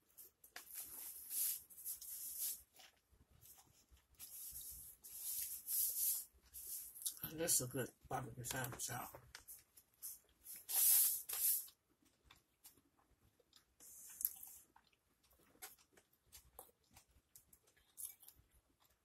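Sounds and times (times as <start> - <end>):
close chewing with mouth clicks: 11.3 - 19.0.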